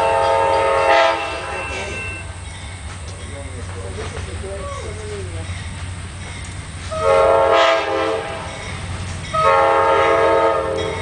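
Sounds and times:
locomotive air horn blasts: 0:00.0 - 0:02.0, 0:06.9 - 0:08.5, 0:09.3 - 0:11.0
low train rumble: 0:00.0 - 0:11.0.

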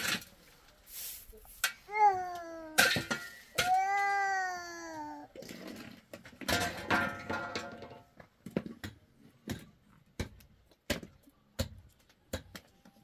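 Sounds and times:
young child crying: 0:01.9 - 0:05.4.

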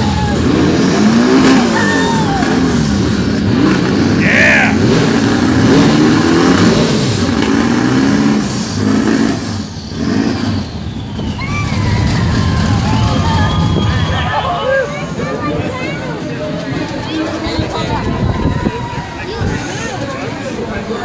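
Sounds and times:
car engine revving: 0:00.0 - 0:17.6.

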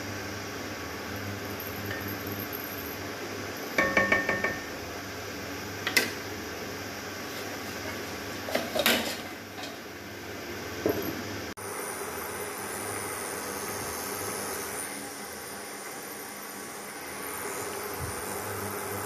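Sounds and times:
steady background hum: 0:00.0 - 0:19.0
utensil knocks: 0:03.8 - 0:04.7.

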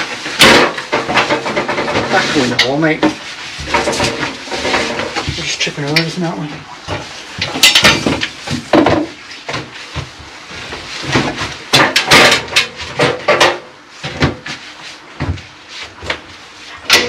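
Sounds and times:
wooden planks knocking: 0:00.3 - 0:05.6.

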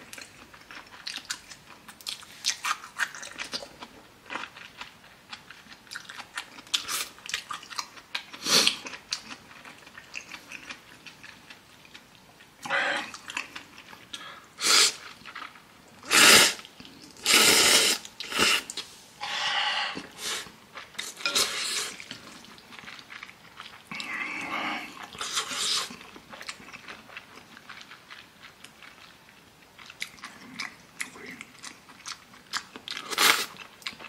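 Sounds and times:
person chewing quietly: 0:00.0 - 0:34.0
person slurping noodles: 0:14.6 - 0:15.0, 0:16.0 - 0:16.6, 0:17.2 - 0:22.1, 0:23.9 - 0:26.0.

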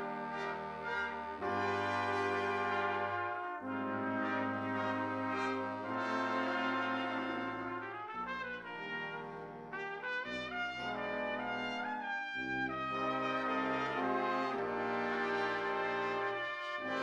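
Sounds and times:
jazz big band playing: 0:00.0 - 0:09.9
trumpet line: 0:00.0 - 0:17.0.

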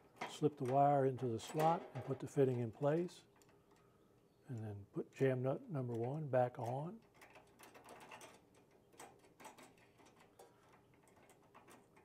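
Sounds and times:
small metallic clicks of nut: 0:03.3 - 0:04.7, 0:05.9 - 0:12.0.

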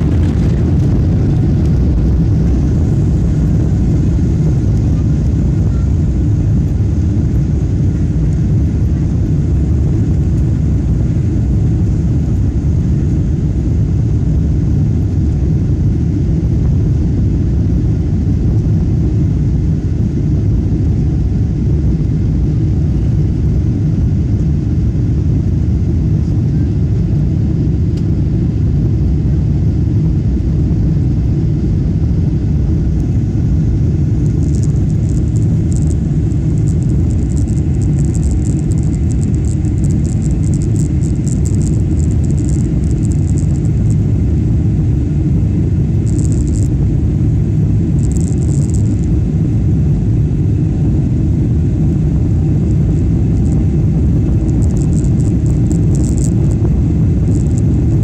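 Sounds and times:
faint crackles: 0:00.0 - 0:05.9, 0:34.1 - 0:44.4, 0:46.0 - 0:46.8, 0:48.0 - 0:49.2, 0:52.7 - 0:58.0
airplane cabin engine rumble: 0:00.0 - 0:58.0.

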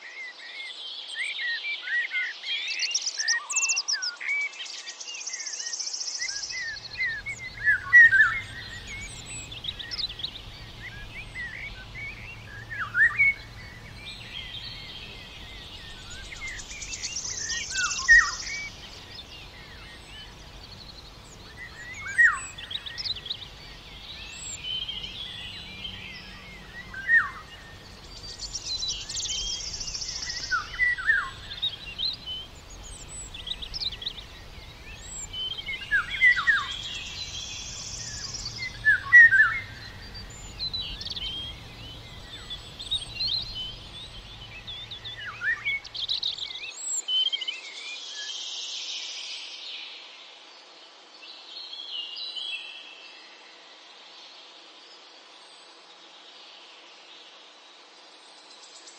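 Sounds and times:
songbirds chirping: 0:00.0 - 0:58.9
faint background hiss: 0:00.6 - 0:58.9
buzzy bird trill: 0:06.6 - 0:46.4.

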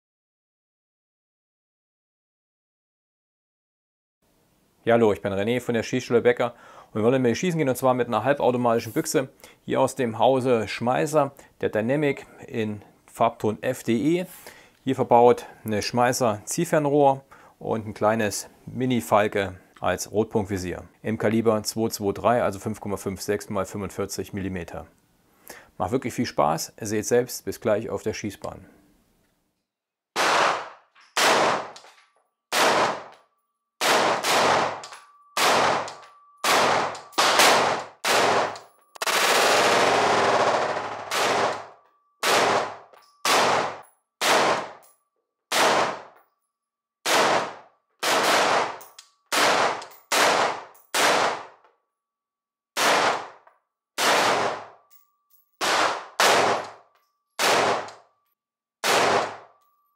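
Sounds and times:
rifle shots echoing: 0:30.2 - 0:31.8, 0:32.5 - 0:33.1, 0:33.8 - 0:44.8, 0:45.5 - 0:46.2, 0:47.0 - 0:51.6, 0:52.8 - 0:53.4, 0:54.0 - 0:54.8, 0:55.6 - 0:56.8, 0:57.4 - 0:58.0, 0:58.8 - 0:59.5.

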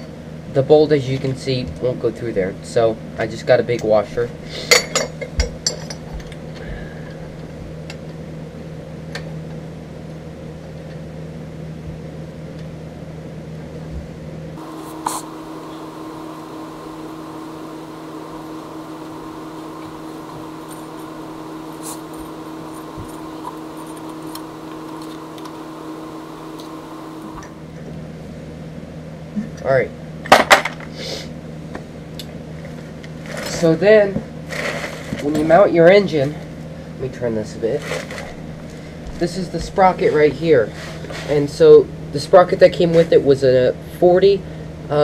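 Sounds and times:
machine hum: 0:13.5 - 0:28.9.

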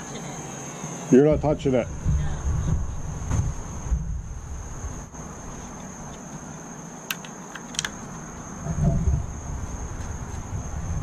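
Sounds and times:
crickets chirring: 0:00.0 - 0:11.0
sharp clicks: 0:07.1 - 0:08.0
low rumble: 0:08.6 - 0:11.0.

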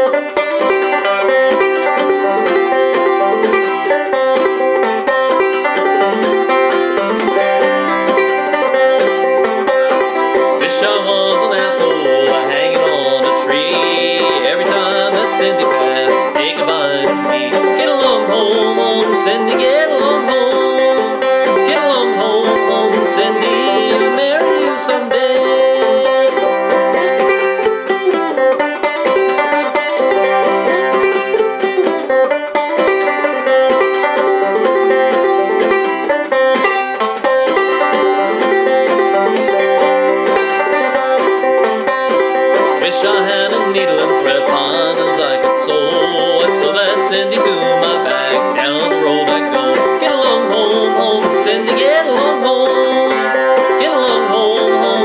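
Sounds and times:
banjo plucked notes: 0:00.0 - 0:55.0
man singing: 0:10.3 - 0:27.0, 0:42.6 - 0:55.0.

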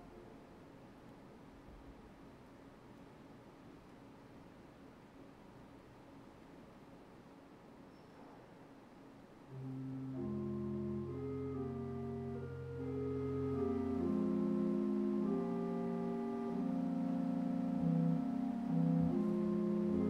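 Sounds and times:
organ playing held chords: 0:09.5 - 0:20.0.

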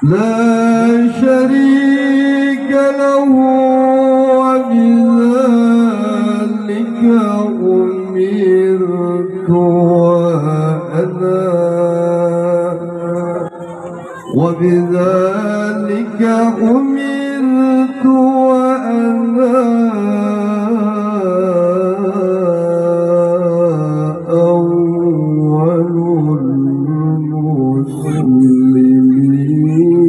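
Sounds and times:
man chanting recitation: 0:00.0 - 0:30.0.

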